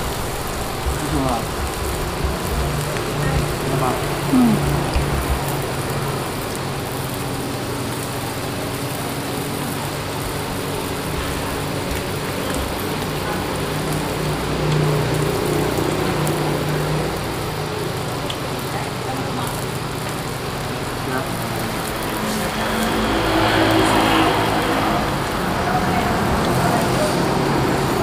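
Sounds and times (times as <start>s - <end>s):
meat sizzling on grill: 0.0s - 28.0s.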